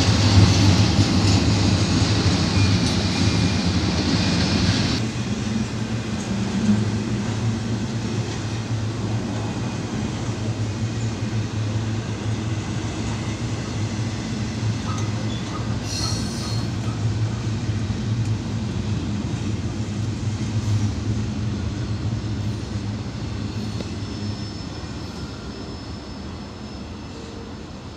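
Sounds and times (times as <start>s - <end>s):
train wheels rumbling on rail: 0.0s - 27.9s
high wheel squeal: 1.6s - 5.0s, 12.0s - 16.9s, 21.9s - 27.9s.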